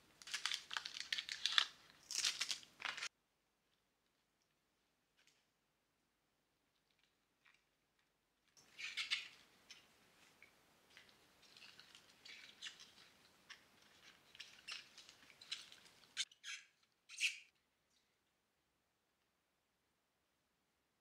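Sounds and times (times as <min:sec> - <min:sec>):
leaves and stems rustling: 0:08.7 - 0:16.2.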